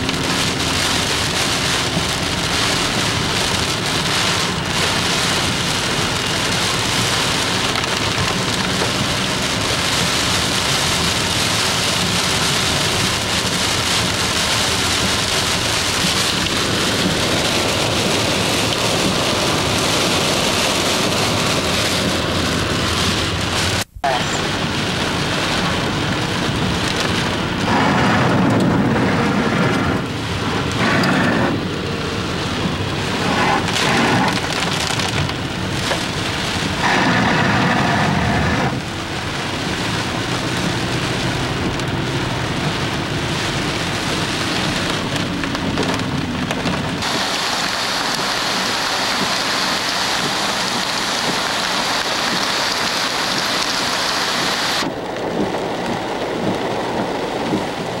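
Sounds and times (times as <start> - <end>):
heavy rain on a car: 0.0 - 58.0
fast-running floodwater: 29.4 - 58.0.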